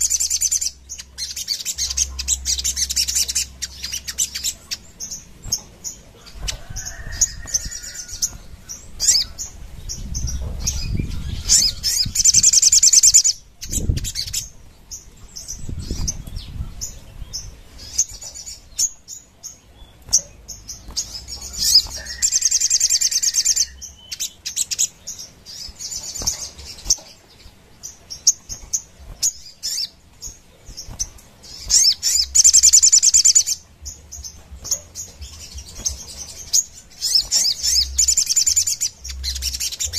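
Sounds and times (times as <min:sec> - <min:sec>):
bird chirping and trilling: 0:00.0 - 0:39.9
bird fluttering in cage: 0:05.4 - 0:09.2.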